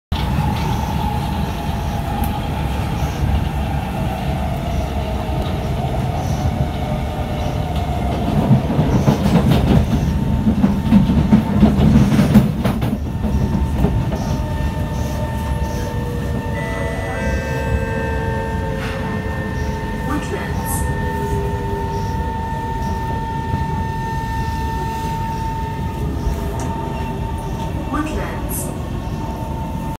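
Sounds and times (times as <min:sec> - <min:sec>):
train wheels rumbling on rail: 0:00.1 - 0:30.0
train motor whine: 0:12.9 - 0:27.8
steady tones: 0:13.5 - 0:28.4.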